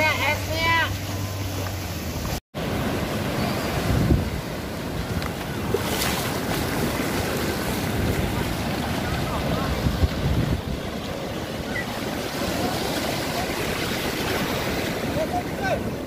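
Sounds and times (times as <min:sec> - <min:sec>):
surf breaking on beach: 0:02.0 - 0:16.0
wind buffeting microphone: 0:03.2 - 0:16.0.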